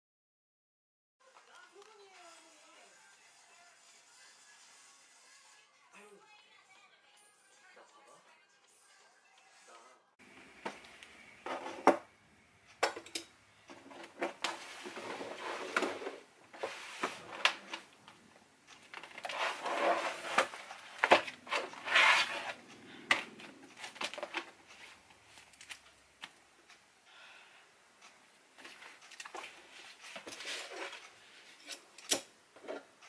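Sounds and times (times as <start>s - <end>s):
rustling: 13.7s - 26.4s.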